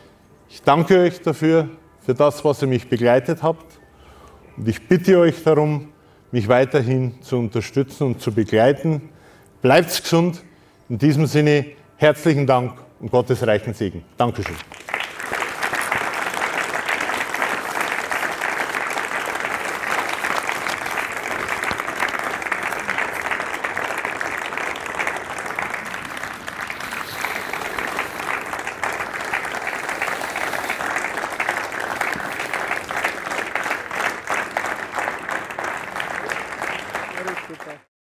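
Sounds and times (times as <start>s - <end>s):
audience applauding: 14.4s - 37.9s.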